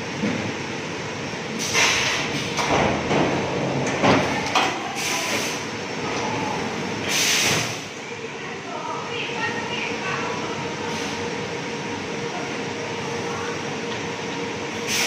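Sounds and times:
short hissing bursts: 0:07.1 - 0:07.8.

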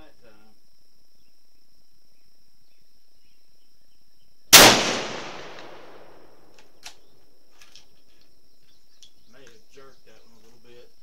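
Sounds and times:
insects chirping: 0:00.0 - 0:11.0
rifle shot with echo: 0:04.5 - 0:06.4.

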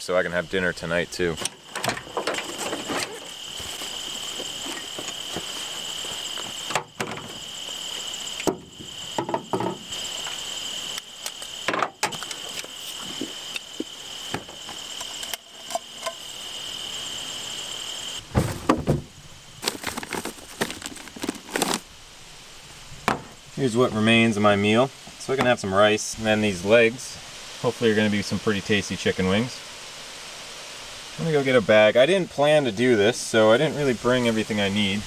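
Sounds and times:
high-pitched insect trill: 0:00.1 - 0:18.3
plastic bags rustling: 0:01.7 - 0:07.5, 0:18.4 - 0:21.9.

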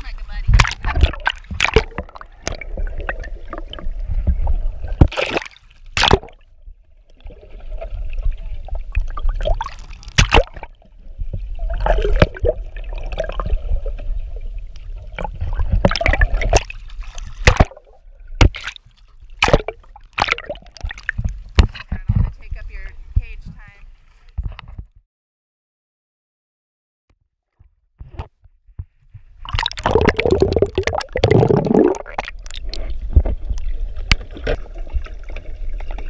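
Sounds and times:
water sloshing and gurgling: 0:00.0 - 0:23.4, 0:28.0 - 0:36.0
sharp knocks and splashes: 0:00.5 - 0:06.5, 0:09.0 - 0:12.6, 0:15.1 - 0:22.3, 0:28.0 - 0:36.0.

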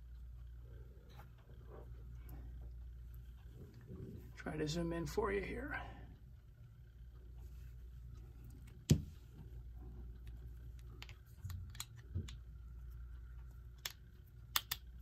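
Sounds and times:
metal clock parts clicking: 0:10.2 - 0:15.0.

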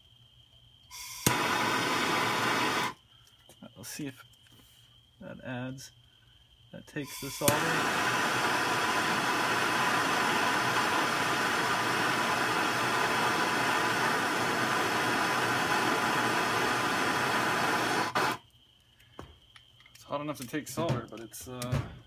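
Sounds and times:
gas torch flame hissing: 0:00.9 - 0:03.0, 0:07.0 - 0:18.4.

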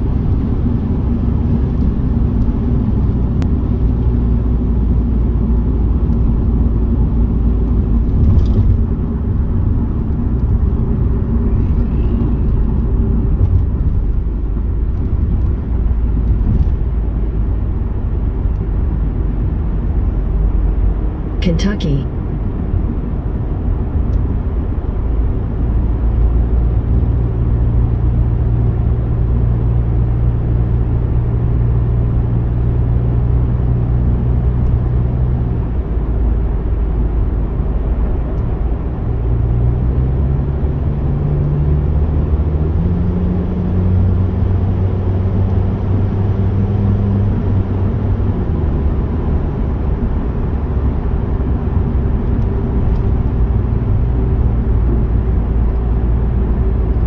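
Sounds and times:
car tyre and engine rumble: 0:00.0 - 0:21.4, 0:22.1 - 0:57.0
low drone: 0:07.7 - 0:15.0.

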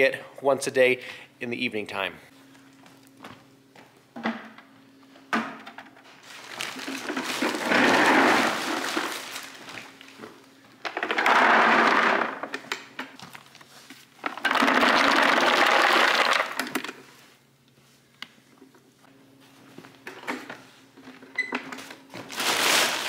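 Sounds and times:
feed pellets pouring into buckets: 0:06.3 - 0:09.6, 0:11.1 - 0:12.4, 0:14.3 - 0:16.7.

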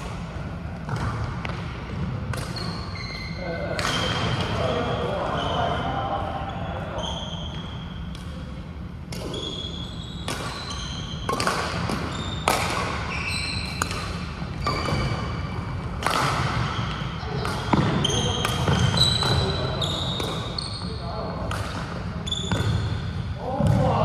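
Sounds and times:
shoes squeaking on court floor: 0:00.9 - 0:08.4, 0:09.2 - 0:21.3, 0:22.1 - 0:23.8
racket striking shuttlecock: 0:10.2 - 0:10.6, 0:11.2 - 0:15.1, 0:15.8 - 0:19.4, 0:21.5 - 0:22.8.

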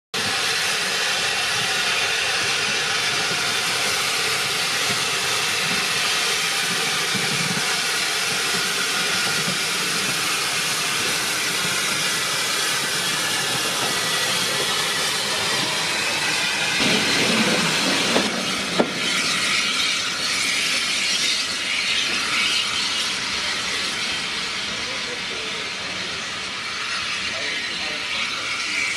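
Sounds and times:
steam engine hauling train: 0:00.1 - 0:28.9
steam hissing: 0:00.2 - 0:28.9
coaches rumbling: 0:11.0 - 0:20.8.

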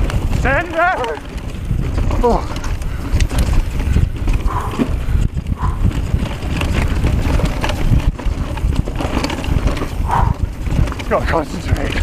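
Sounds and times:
bike rattling over rocks: 0:00.0 - 0:12.0
wind buffeting microphone: 0:00.0 - 0:12.0
rider breathing hard: 0:01.6 - 0:11.0.

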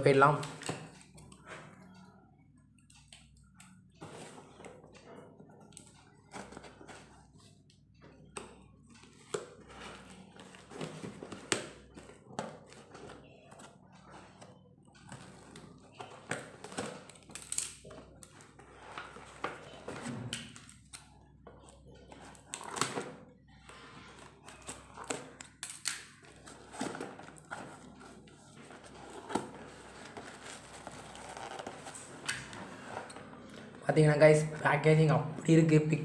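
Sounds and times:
cardboard parcel rustling: 0:26.2 - 0:33.8.

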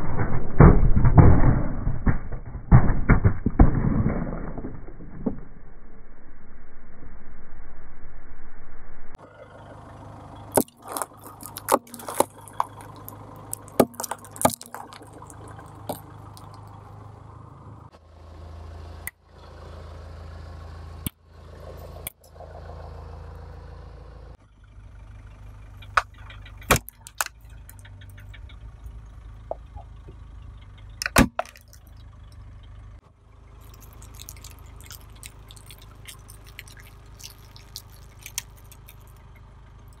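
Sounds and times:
car engine idling: 0:09.2 - 0:40.0
hard candy shattering: 0:10.5 - 0:16.7, 0:31.0 - 0:31.9, 0:33.6 - 0:39.2
tyre crushing objects: 0:10.6 - 0:16.6.

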